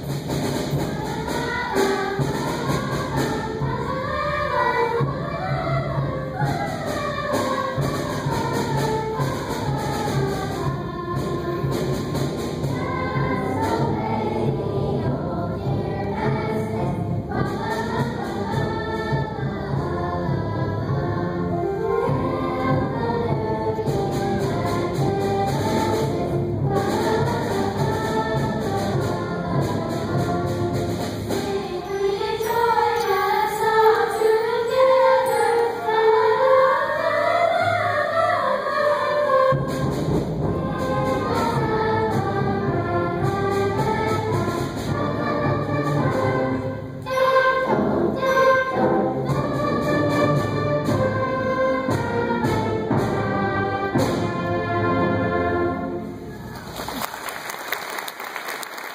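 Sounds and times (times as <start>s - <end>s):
group of singers: 0.0s - 56.4s
concert band with brass: 0.0s - 58.9s
applause: 56.5s - 58.9s.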